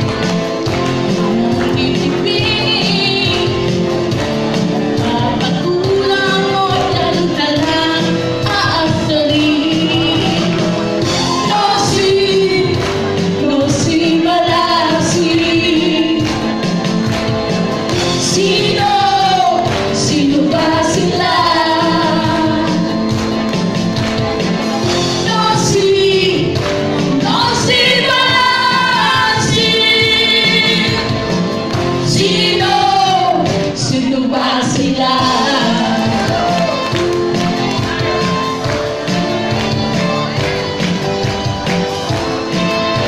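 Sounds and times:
loud backing music: 0.0 - 43.0
women singing a duet: 1.5 - 3.8, 5.0 - 10.7, 11.3 - 16.6, 18.2 - 23.2, 25.2 - 31.2, 32.0 - 36.8.

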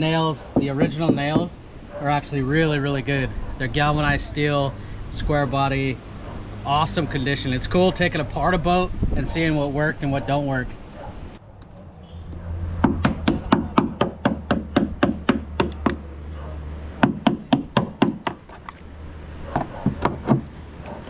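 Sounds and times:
hammer striking a hand tool: 0.6 - 1.5, 12.8 - 16.0, 17.0 - 18.6, 19.5 - 20.6.

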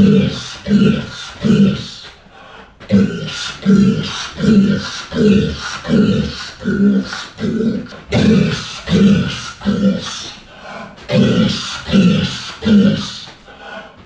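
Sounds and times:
man barking a rough syllable: 0.0 - 2.1, 2.9 - 10.3.

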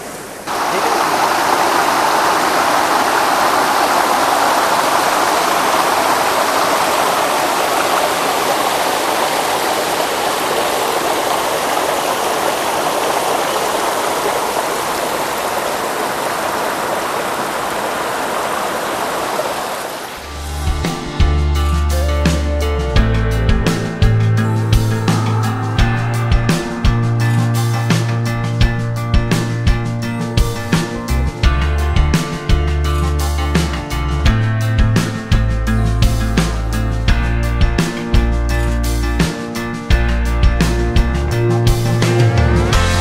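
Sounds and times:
river water rushing over weir: 0.0 - 21.0.

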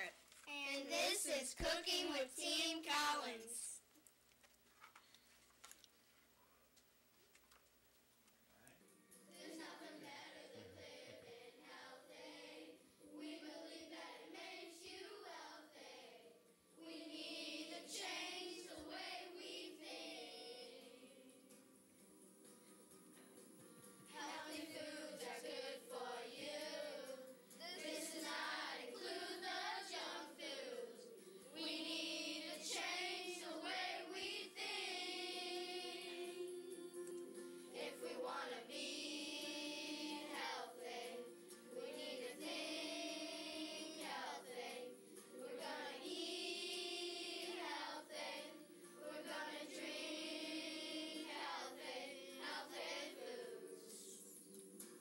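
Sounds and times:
choir singing with instruments: 9.2 - 21.7, 23.9 - 55.0.

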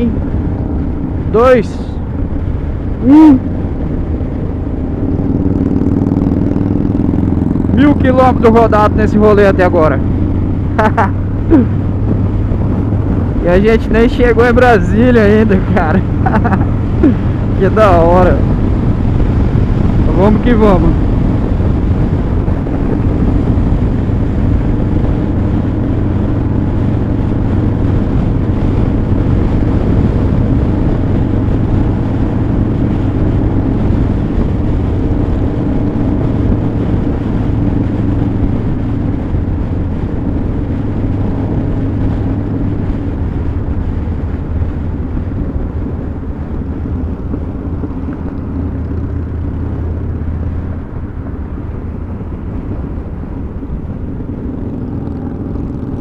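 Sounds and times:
motorcycle engine cruising: 0.0 - 56.0
wind rushing over microphone: 0.0 - 56.0.

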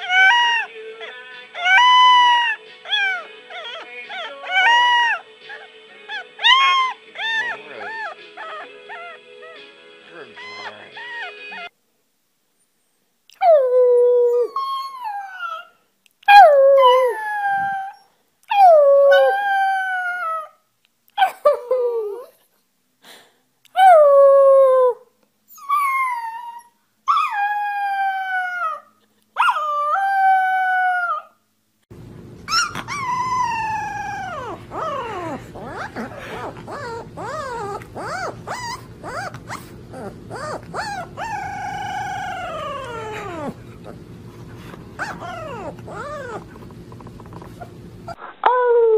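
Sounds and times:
puppy howling: 0.0 - 9.7, 10.4 - 11.7, 13.4 - 20.6, 25.6 - 31.4, 32.5 - 44.0, 45.0 - 48.9.

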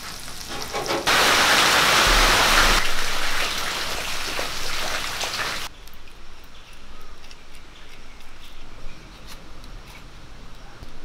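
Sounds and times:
fish frying in sizzling oil: 0.0 - 5.7.

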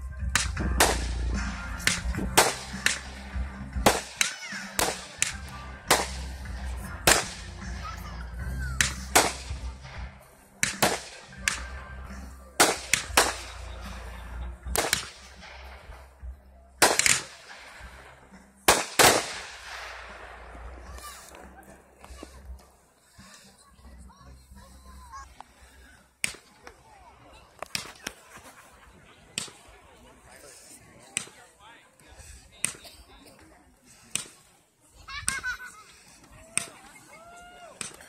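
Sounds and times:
music playing: 0.0 - 25.3
fireworks bursting with bangs: 0.2 - 7.9, 8.7 - 11.8, 12.6 - 14.1, 14.7 - 16.2, 16.8 - 21.5.

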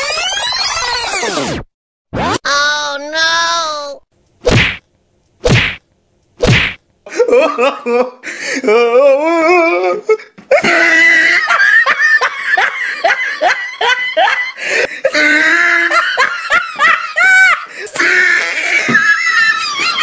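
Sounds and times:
loud human laughter: 7.1 - 8.2, 10.5 - 20.0.

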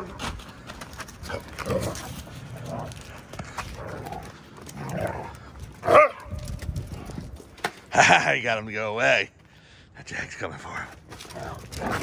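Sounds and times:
claws scuffling on brick: 0.0 - 7.9
dogs growling: 1.2 - 6.2, 11.2 - 12.0.

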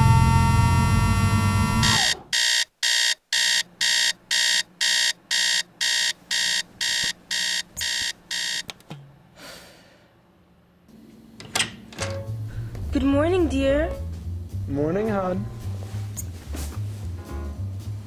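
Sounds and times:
alarm clock beeping: 0.0 - 8.6.

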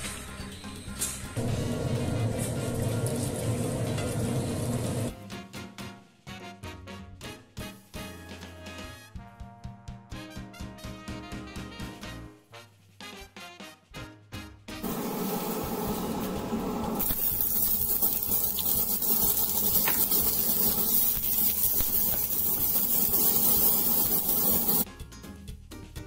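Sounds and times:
music: 0.0 - 26.0
onion sizzling in hot oil: 1.4 - 5.1, 14.8 - 24.8
oil pouring into a frying pan: 17.0 - 24.8
spatula stirring in a pan: 17.0 - 24.8.

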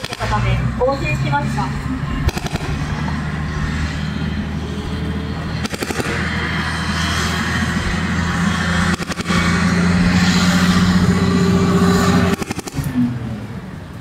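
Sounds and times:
heavy vehicle engine running: 0.0 - 14.0
rapid gunfire bursts: 2.2 - 2.8, 5.6 - 6.2.

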